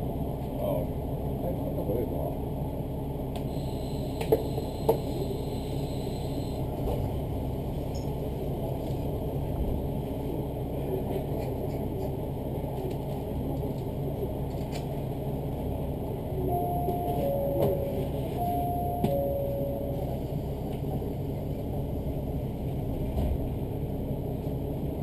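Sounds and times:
diesel engine idling: 2.4s - 7.6s, 15.4s - 22.7s.

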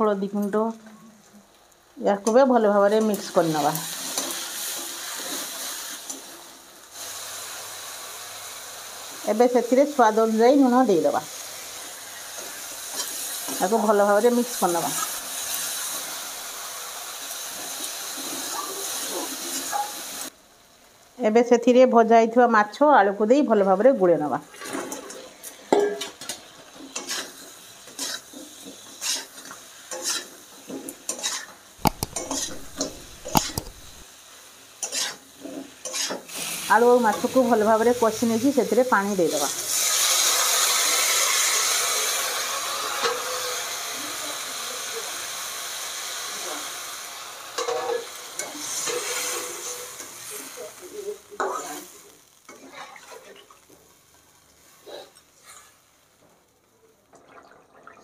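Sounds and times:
water sizzling in hot oil: 0.2s - 22.8s, 23.6s - 58.0s
metal spatula scraping pan: 24.7s - 34.0s, 34.8s - 36.3s
spatula clanking against pan: 31.1s - 34.0s.

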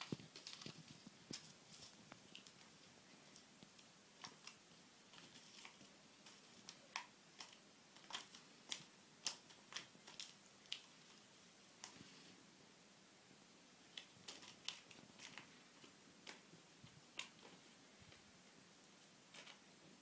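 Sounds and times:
kitten paws clicking and tapping: 0.0s - 11.2s.

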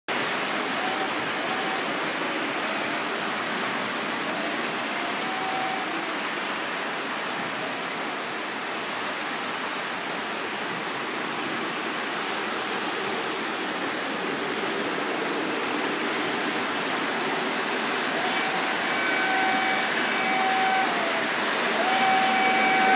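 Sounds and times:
model trains rolling on track: 0.1s - 22.9s.

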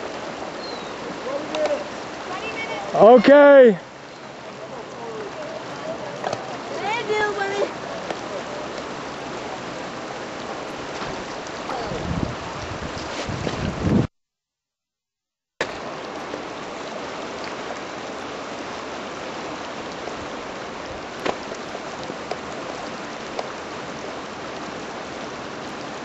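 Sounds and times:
river water over rapids: 0.0s - 14.0s, 15.6s - 26.0s.

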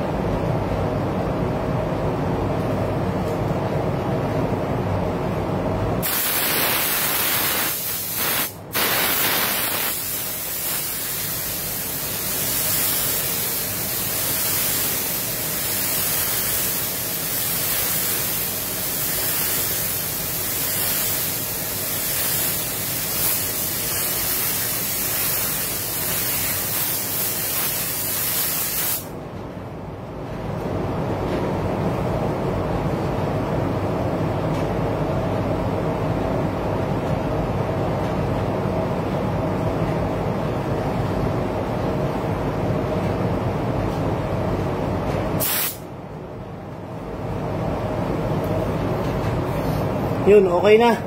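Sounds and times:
ventilation rumble: 0.0s - 51.0s
paint spray gun hissing: 6.0s - 29.1s, 45.4s - 45.8s.

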